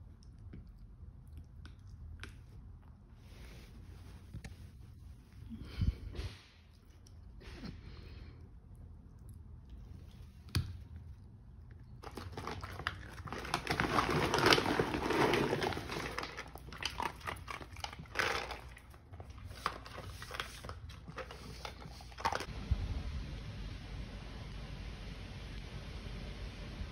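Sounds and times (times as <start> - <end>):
dogs crunching kibble in bowls: 12.0 - 22.5.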